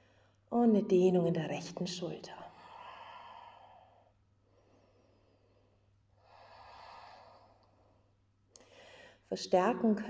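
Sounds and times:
woman breathing slowly: 2.5 - 9.3.

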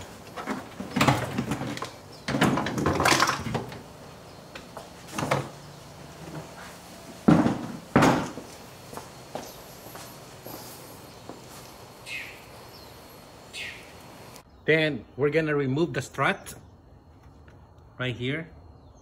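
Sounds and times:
loud sharp knocks: 7.3 - 8.4.

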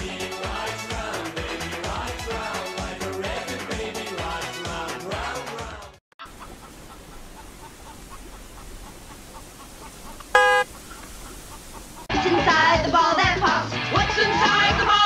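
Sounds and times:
duck quacking: 6.2 - 12.0
faint outdoor background noise: 6.2 - 12.6.

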